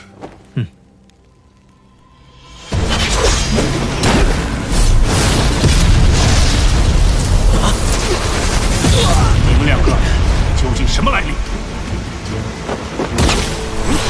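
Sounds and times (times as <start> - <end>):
energy blast: 2.5 - 11.5
rumble of booms and impacts: 2.5 - 13.9.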